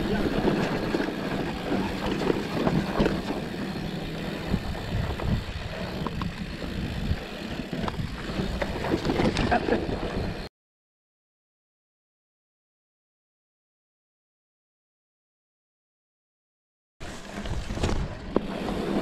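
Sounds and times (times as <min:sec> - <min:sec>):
bike rattling: 0:00.0 - 0:10.5, 0:17.0 - 0:19.0
tyres running on dirt: 0:00.0 - 0:10.5
wind rushing over microphone: 0:04.3 - 0:10.5.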